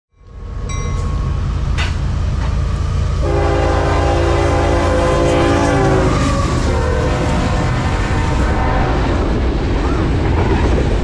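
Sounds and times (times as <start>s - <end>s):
train clank: 0.2s - 6.2s
train wheels rumbling on rail: 0.2s - 11.0s
train horn chord: 3.1s - 9.4s.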